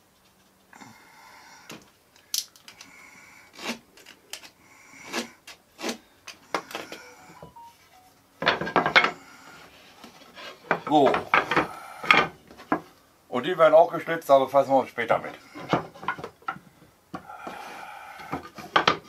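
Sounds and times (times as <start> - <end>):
knife scraping along wood: 3.5 - 6.1, 9.7 - 10.8
wooden battens knocking together: 10.7 - 12.8, 18.3 - 19.0.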